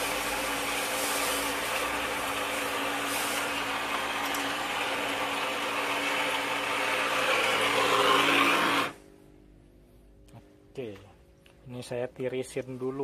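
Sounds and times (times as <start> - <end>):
water splashing from a hose: 0.0 - 5.2
mechanical hum: 0.0 - 13.0.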